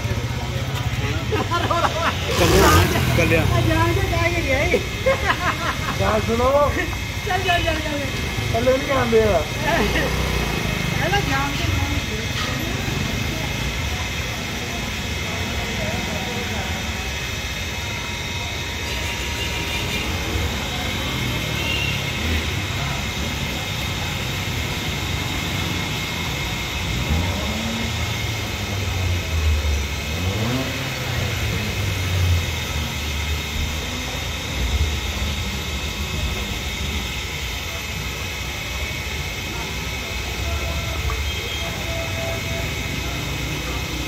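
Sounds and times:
vehicle engines passing: 0.0s - 14.1s, 20.0s - 36.5s.

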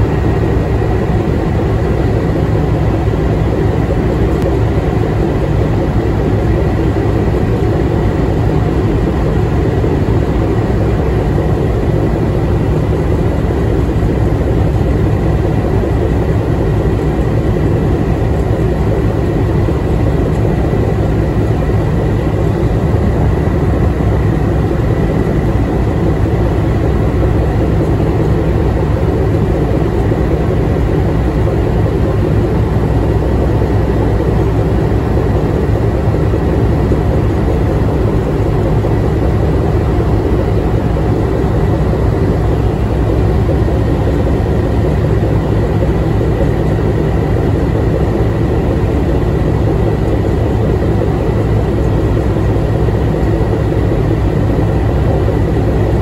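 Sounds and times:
diesel engine drone: 0.0s - 56.0s.

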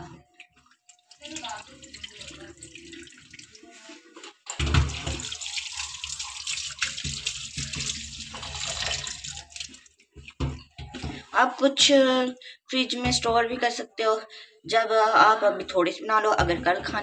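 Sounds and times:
faint water trickle: 0.2s - 4.0s, 4.9s - 11.2s
tap water running into bowl: 0.5s - 3.6s, 4.6s - 11.0s.

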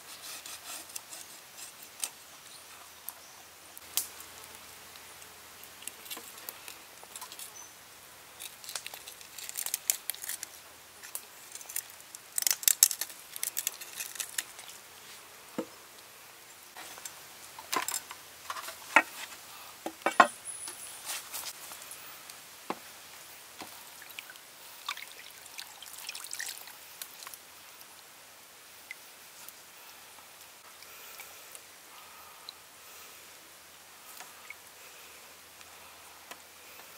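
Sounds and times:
water splashing: 23.8s - 27.3s.

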